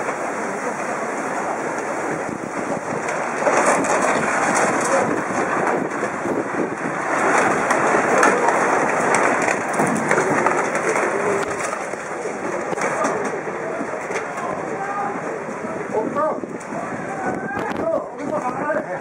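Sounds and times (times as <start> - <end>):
floodwater rushing: 0.0 - 19.0.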